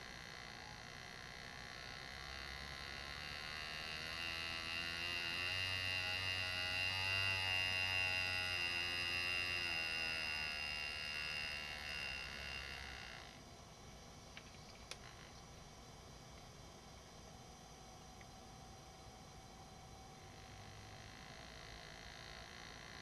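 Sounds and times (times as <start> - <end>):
pneumatic engraver buzzing: 1.0 - 13.4.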